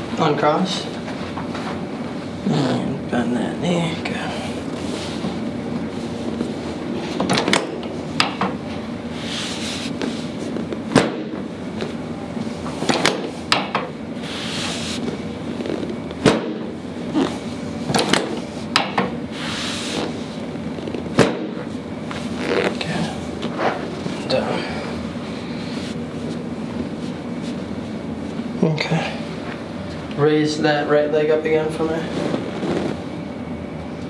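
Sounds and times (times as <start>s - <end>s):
soft rustling: 25.2s - 28.5s.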